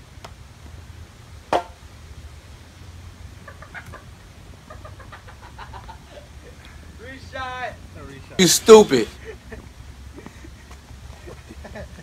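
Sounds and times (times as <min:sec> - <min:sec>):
golf ball knocking hard edge: 0:01.5 - 0:01.8.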